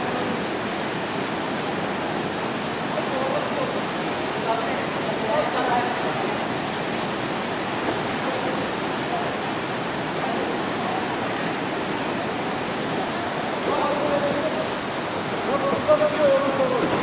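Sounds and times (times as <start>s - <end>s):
waterfall rushing: 0.0s - 17.0s
faint voices: 7.5s - 17.0s.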